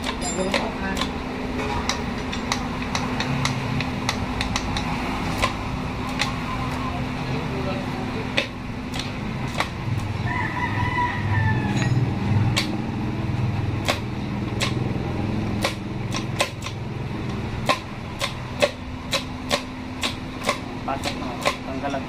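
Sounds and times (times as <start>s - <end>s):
metallic gear parts clinking: 0.0s - 0.7s, 11.7s - 12.1s
rooster crowing: 10.1s - 12.2s.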